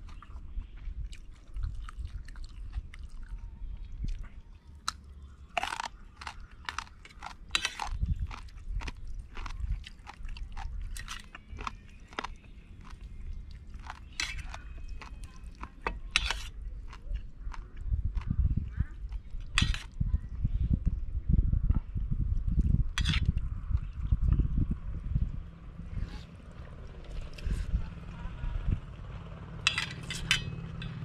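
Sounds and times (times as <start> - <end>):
person chewing crunchy vegetables: 0.0 - 20.0.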